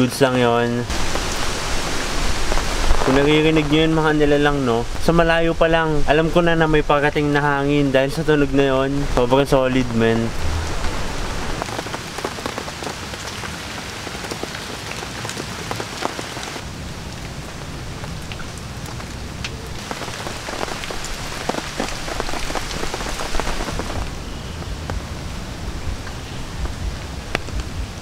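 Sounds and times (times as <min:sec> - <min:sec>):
rain hiss: 0:00.0 - 0:28.0
raindrops tapping on tarp: 0:00.9 - 0:04.1, 0:11.6 - 0:16.7, 0:18.3 - 0:25.1, 0:25.9 - 0:28.0.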